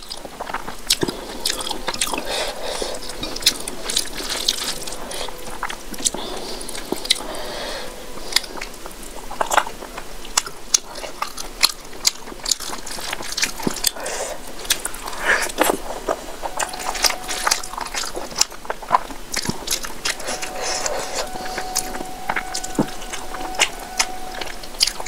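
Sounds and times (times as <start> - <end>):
person chewing food: 0.0 - 20.3.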